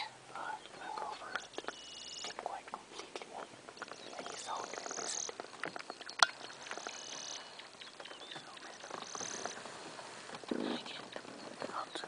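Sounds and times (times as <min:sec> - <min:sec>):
people whispering: 0:00.0 - 0:05.4, 0:06.7 - 0:12.0
handling clicks and knocks: 0:05.3 - 0:07.0.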